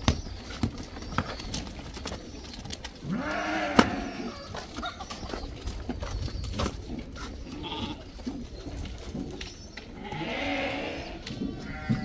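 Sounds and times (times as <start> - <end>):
sheep bleating: 3.1 - 4.3, 10.0 - 12.0.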